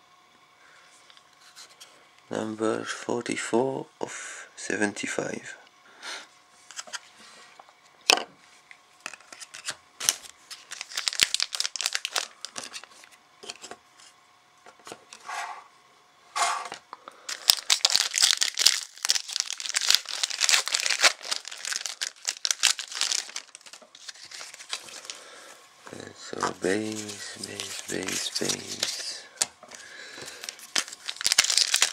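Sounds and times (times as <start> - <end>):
foil wrapper tearing and crinkling: 9.1 - 13.6, 17.3 - 25.4, 26.5 - 31.9.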